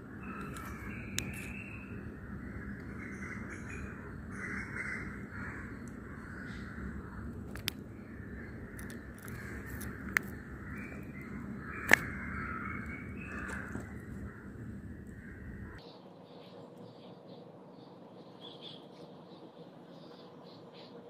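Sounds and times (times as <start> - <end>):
crows cawing: 0.0 - 15.8
birds calling: 0.0 - 21.0
sharp clicks: 8.8 - 12.2.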